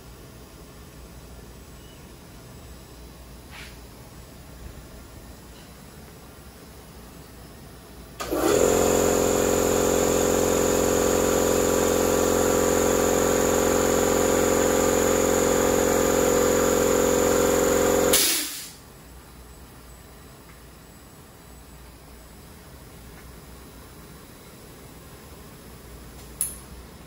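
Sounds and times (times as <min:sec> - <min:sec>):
short hiss: 0:03.5 - 0:03.8, 0:18.1 - 0:18.8
machine humming: 0:08.2 - 0:18.2.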